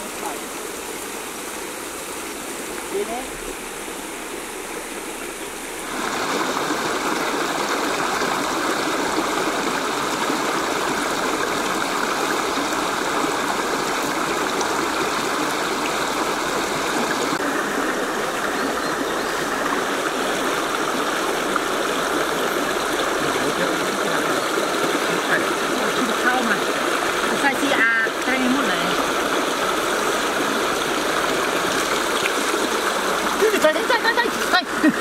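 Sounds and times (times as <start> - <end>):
creek water flowing: 0.0 - 35.0.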